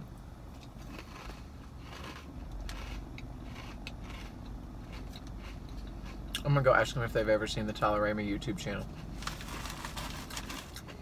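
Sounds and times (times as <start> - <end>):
chewing crunchy snack: 0.5 - 6.4, 9.0 - 11.0.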